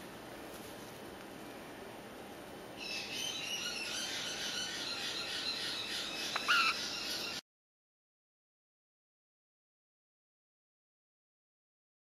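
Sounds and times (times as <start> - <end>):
parrot chick chirping: 2.8 - 7.4
parrot squawk: 2.8 - 7.4.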